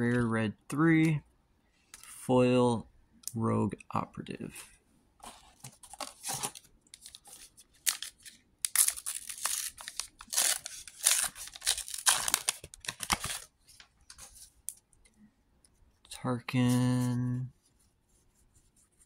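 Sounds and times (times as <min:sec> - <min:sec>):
foil wrapper tearing and crinkling: 0:07.9 - 0:13.5.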